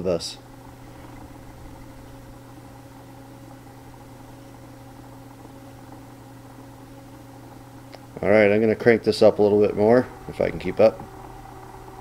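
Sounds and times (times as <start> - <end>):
spinning wheel motor hum: 0.0 - 12.0.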